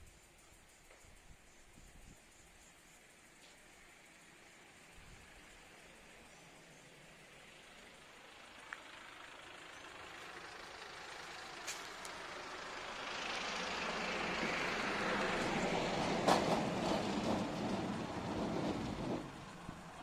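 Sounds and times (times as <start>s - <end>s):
sliding gate rolling rumble: 14.4s - 20.0s.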